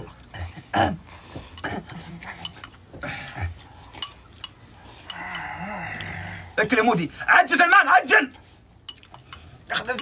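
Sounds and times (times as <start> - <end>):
spoons clinking and scraping in bowls: 1.5 - 2.8, 8.8 - 10.0.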